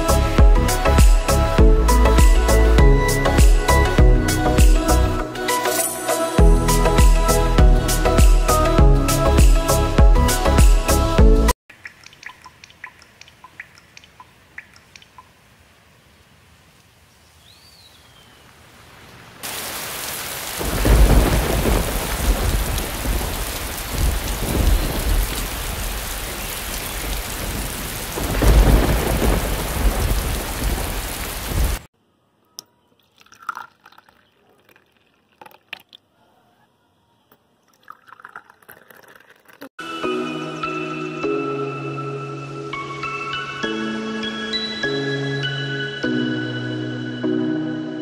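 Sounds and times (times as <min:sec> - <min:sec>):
faint clicks: 0:11.8 - 0:15.3
heavy rain: 0:15.2 - 0:31.9
thunder rumbles: 0:20.5 - 0:31.9.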